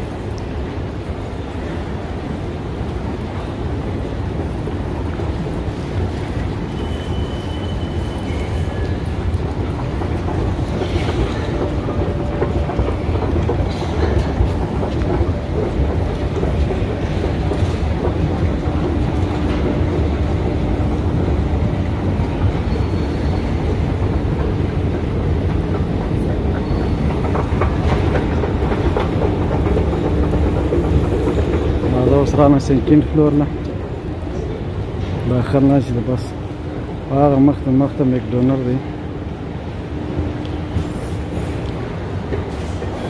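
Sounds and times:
escalator rumbling: 0.0 - 43.0
moving steps rattling: 8.0 - 43.0.

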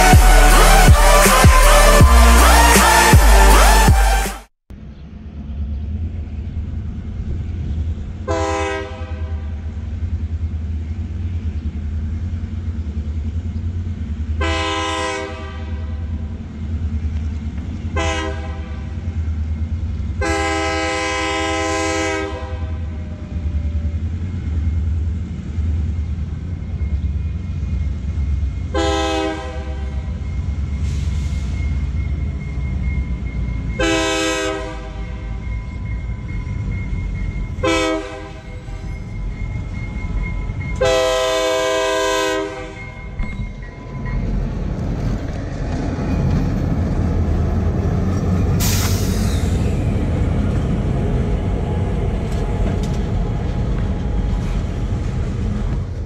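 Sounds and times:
locomotive air horn blasts: 0.0 - 4.3, 8.3 - 9.6, 14.4 - 16.0, 18.0 - 19.0, 20.2 - 23.0, 28.7 - 30.2, 33.8 - 35.4, 37.6 - 38.9, 40.8 - 43.0
train rumble: 0.0 - 56.0.

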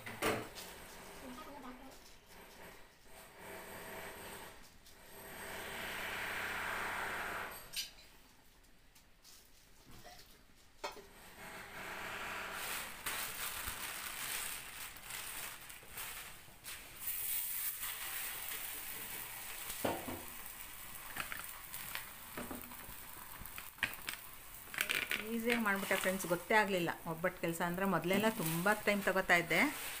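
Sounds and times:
plastic sheet crinkling: 12.6 - 30.0.

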